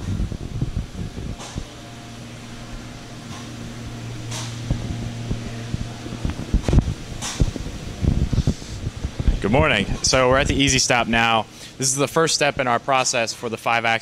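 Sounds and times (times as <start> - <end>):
low ventilation hum: 0.0 - 14.0
microphone handling thumps: 3.3 - 10.6.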